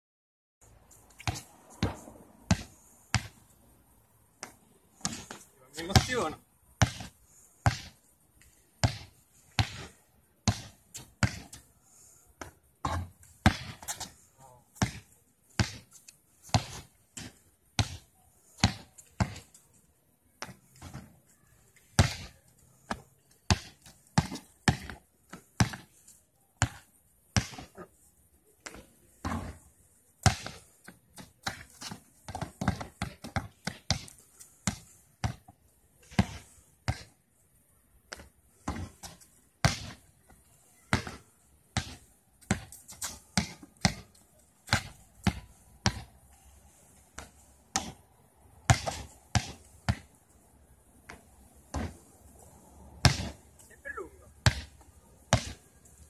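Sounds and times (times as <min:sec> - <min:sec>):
basketball dribbling on pavement: 0:01.1 - 0:03.5, 0:04.4 - 0:08.0, 0:08.8 - 0:11.7, 0:12.4 - 0:14.1, 0:14.8 - 0:19.6, 0:21.8 - 0:25.9, 0:26.6 - 0:27.9, 0:28.6 - 0:37.2, 0:38.1 - 0:46.2, 0:47.1 - 0:50.2, 0:51.0 - 0:52.1, 0:53.0 - 0:53.4, 0:54.4 - 0:55.7
basketball thuds: 0:29.2 - 0:29.6, 0:53.0 - 0:53.4.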